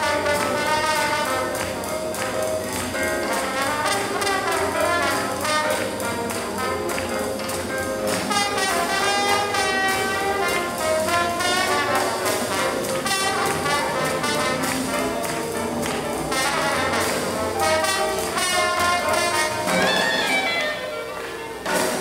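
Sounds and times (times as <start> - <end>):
brass horns: 0.0 - 22.0
swing jazz band playing: 0.0 - 22.0.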